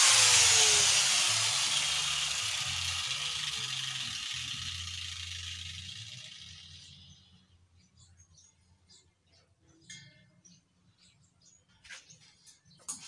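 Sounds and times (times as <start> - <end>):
angle grinder disc coasting down: 0.0 - 7.1.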